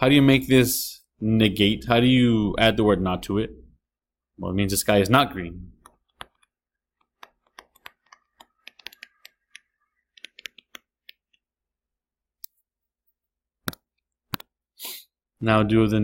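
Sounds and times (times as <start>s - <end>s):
stylus tapping on touchscreen: 5.8s - 11.4s, 13.6s - 14.6s.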